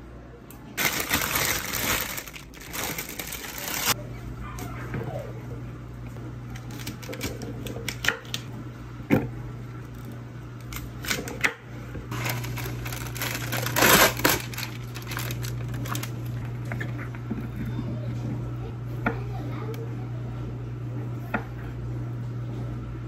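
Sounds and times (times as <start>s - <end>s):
steady low hum: 0.0s - 23.0s
plastic bag crinkling: 0.8s - 4.0s, 12.1s - 16.5s.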